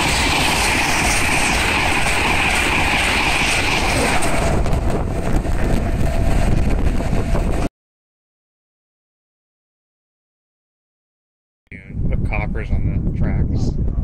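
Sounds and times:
train passing: 0.0s - 7.7s
wind buffeting microphone: 0.0s - 7.7s, 11.7s - 14.0s.

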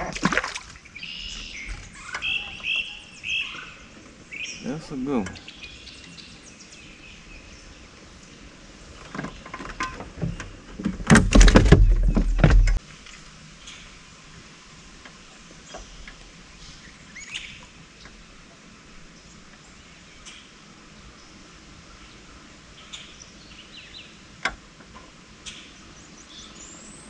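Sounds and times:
faint bird chirps: 0.9s - 7.8s
gear knocking in a boat: 9.0s - 12.8s.

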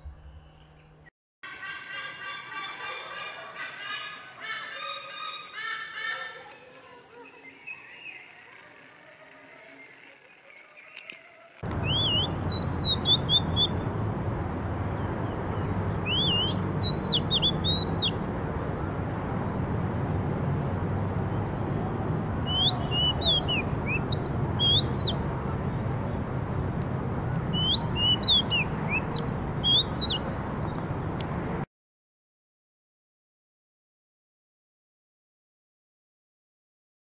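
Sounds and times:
bird singing: 0.0s - 20.6s, 22.4s - 30.9s
low background rumble: 11.7s - 31.6s.

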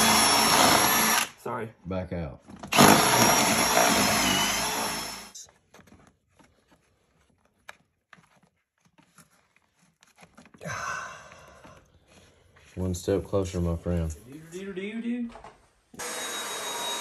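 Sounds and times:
power drill boring through wood: 0.0s - 1.4s, 2.6s - 5.4s, 16.0s - 17.0s.

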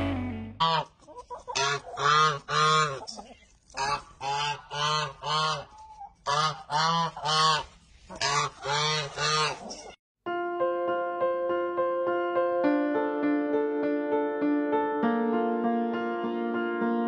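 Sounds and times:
goose honking: 0.0s - 0.9s, 1.5s - 9.9s.

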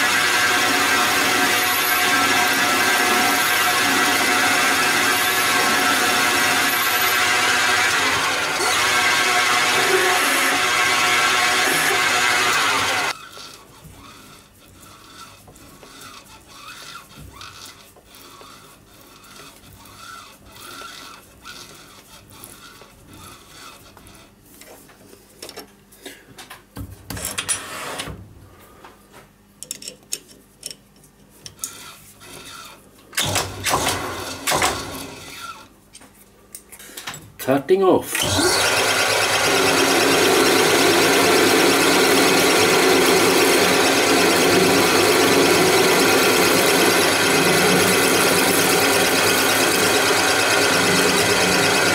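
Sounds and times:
lathe spindle noise: 0.0s - 24.3s, 38.2s - 51.9s.

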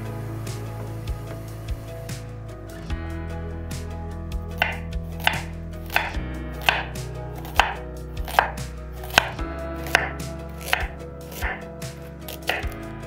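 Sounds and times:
knife slicing carrot: 4.6s - 12.8s.

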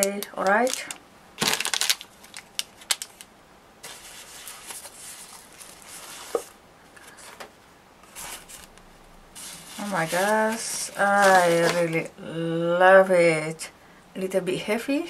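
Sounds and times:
crackles and clicks: 0.0s - 5.9s
plastic packaging crinkling: 0.0s - 6.5s, 9.4s - 12.1s
plastic wrap rustling: 0.0s - 7.4s, 8.0s - 12.1s.

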